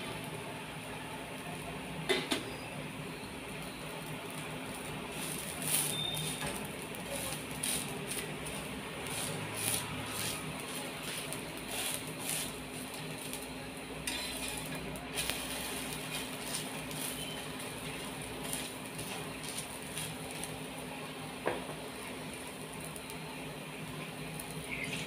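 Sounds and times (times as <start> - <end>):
steady hiss: 0.0 - 25.0
spatula scraping iron griddle: 5.1 - 13.4, 14.0 - 20.5.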